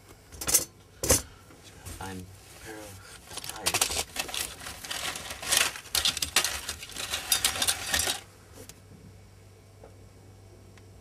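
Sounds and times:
wires and plastic connectors rattling: 3.2 - 8.3.

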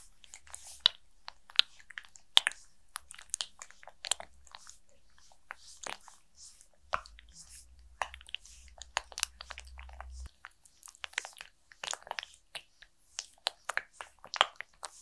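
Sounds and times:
low rumble: 6.8 - 10.3.

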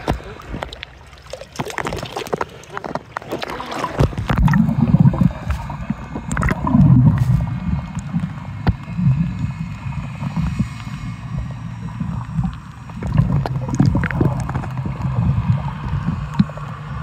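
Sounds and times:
underwater rumble and gurgling: 0.0 - 17.0
water splashing: 0.0 - 17.0.

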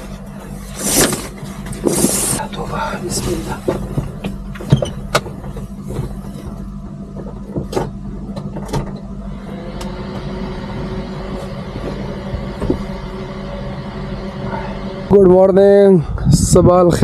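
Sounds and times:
knocks and rustles of movement: 0.0 - 9.1
low mechanical hum: 0.0 - 17.0.

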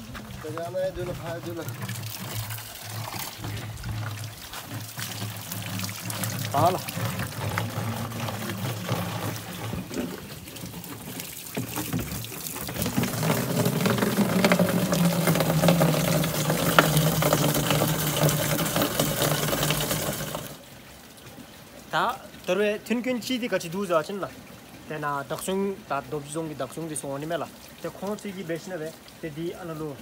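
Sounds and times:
water pouring into plastic container: 0.0 - 20.7.

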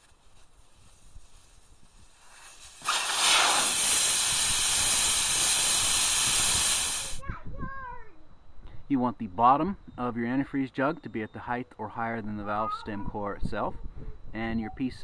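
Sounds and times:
air hissing out of tire valve: 0.0 - 7.2.

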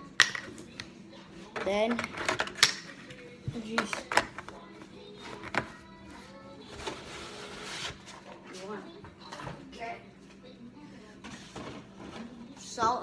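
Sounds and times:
music playing: 0.0 - 13.0
kitchen things clicking and knocking: 0.2 - 0.9, 1.5 - 4.6.

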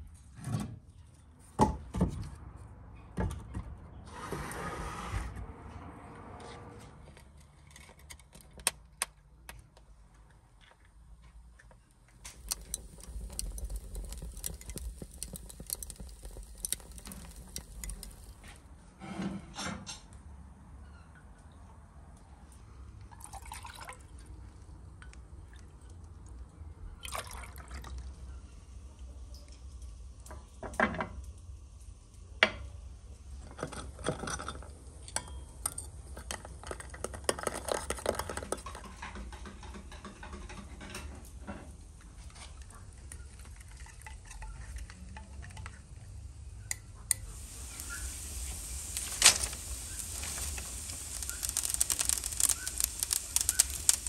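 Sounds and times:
wood fire crackling: 11.9 - 18.8, 33.1 - 39.6, 42.2 - 54.0
metal spoon stirring and scraping: 12.3 - 18.6
water pouring into a pot: 12.3 - 18.6, 23.1 - 24.3, 27.0 - 28.3, 47.2 - 54.0.

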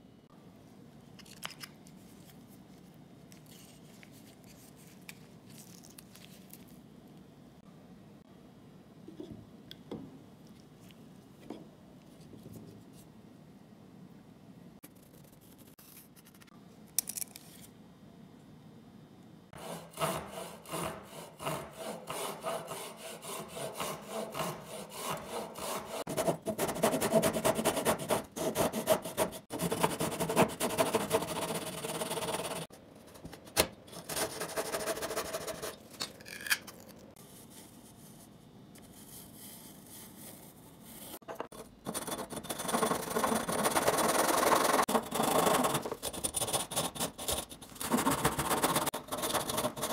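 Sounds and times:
hand saw cutting wood: 19.6 - 32.7.

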